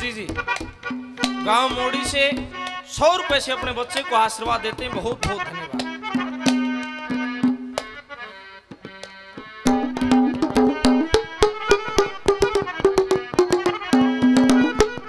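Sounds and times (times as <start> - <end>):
harmonium melody: 0.0 - 15.0
hand drum strokes: 9.6 - 15.0.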